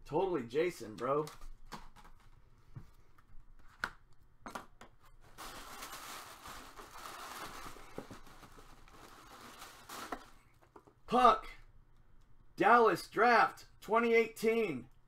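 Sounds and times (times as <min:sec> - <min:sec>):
tissue paper rustling and crinkling: 0:05.2 - 0:10.5.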